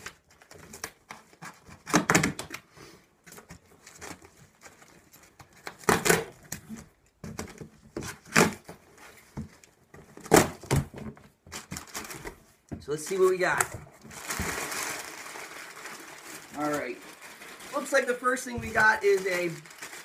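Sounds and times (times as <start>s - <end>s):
packing tape tearing: 3.3s - 8.7s, 13.5s - 18.0s, 18.6s - 20.0s.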